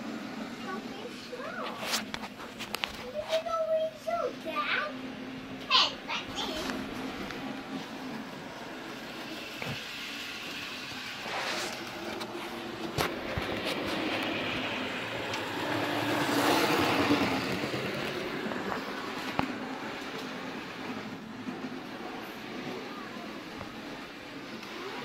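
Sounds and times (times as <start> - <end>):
model train motor whirring: 5.5 - 25.0.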